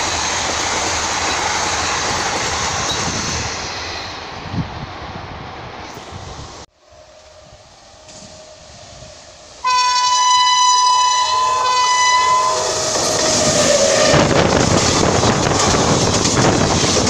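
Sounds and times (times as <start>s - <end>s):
train passing rush and rumble: 0.0s - 17.0s
train horn blast: 6.8s - 14.8s.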